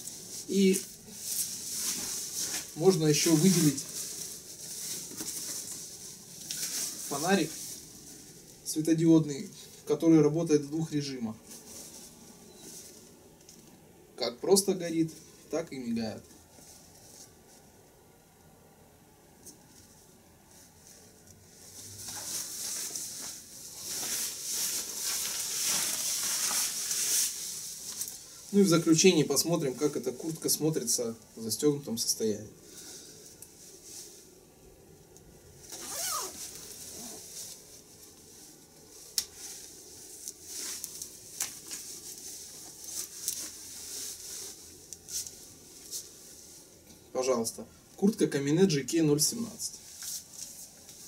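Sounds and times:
jacket rustling and swishing: 0.0 - 8.7, 11.3 - 13.3, 19.6 - 31.4, 35.6 - 46.8, 49.8 - 51.0.

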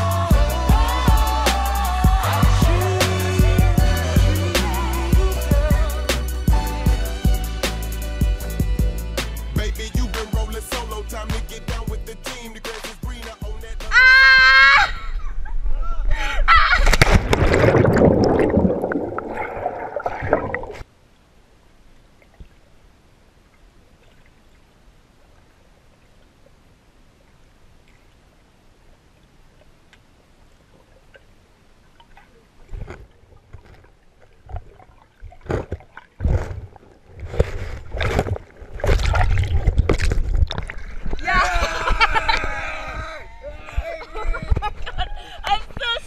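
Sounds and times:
water sloshing and gurgling: 16.8 - 20.9, 21.6 - 41.4
water splashes: 16.8 - 20.9, 21.8 - 43.0.

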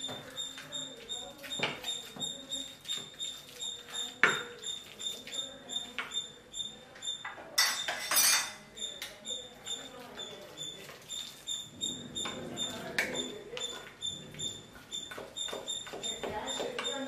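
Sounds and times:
utensil scraping bowl: 0.0 - 17.0
wooden utensil knocking on steel bowl: 1.4 - 3.2, 3.9 - 4.6, 14.8 - 17.0.

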